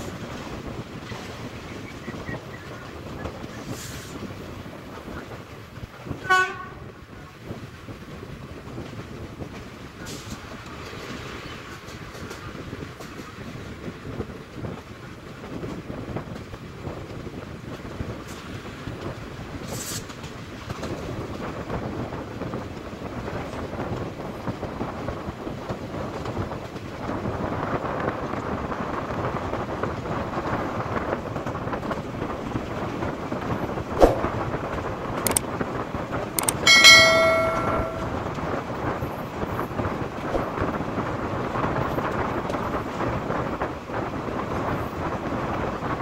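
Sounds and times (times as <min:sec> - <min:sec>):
train wheels on rail and wind: 0:00.0 - 0:46.0
train horn: 0:06.2 - 0:06.9
sharp knock: 0:36.4 - 0:38.2.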